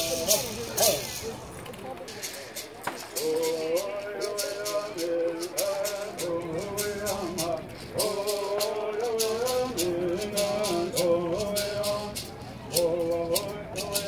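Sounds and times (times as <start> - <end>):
gourd rattles shaken: 0.0 - 14.0
group singing: 3.2 - 14.0.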